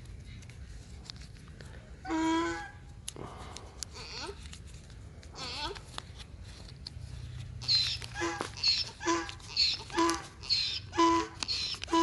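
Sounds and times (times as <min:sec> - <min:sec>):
animal calling: 0:07.6 - 0:12.0.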